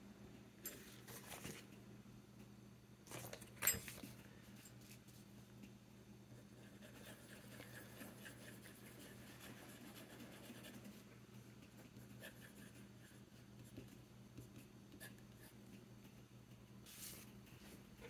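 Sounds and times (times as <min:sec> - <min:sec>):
fountain pen scratching paper: 0:06.6 - 0:10.9.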